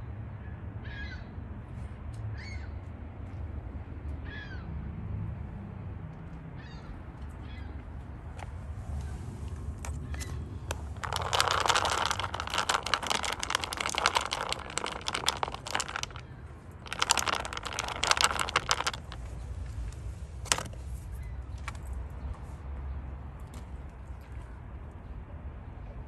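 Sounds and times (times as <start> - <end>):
cat kibble rattling in plastic tub: 9.8 - 20.8.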